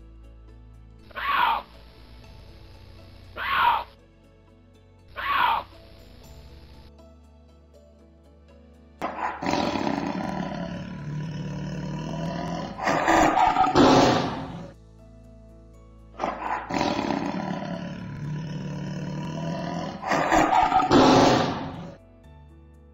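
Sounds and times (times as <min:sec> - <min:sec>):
tiger roaring: 0:01.1 - 0:01.8, 0:03.4 - 0:03.9, 0:05.2 - 0:05.8, 0:09.0 - 0:14.8, 0:16.2 - 0:22.0.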